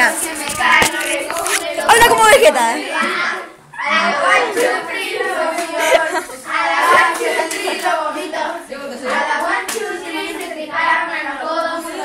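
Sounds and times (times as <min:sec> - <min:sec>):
young voices talking and laughing: 0:00.0 - 0:09.1.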